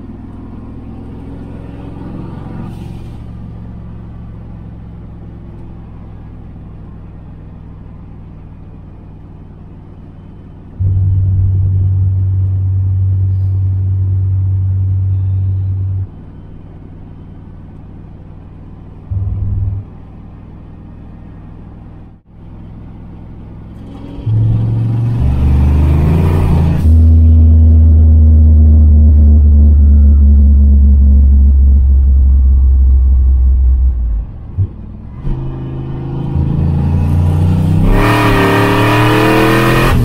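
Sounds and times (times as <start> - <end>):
car engine accelerating: 0.0 - 40.0
turbo air rush: 0.8 - 3.6.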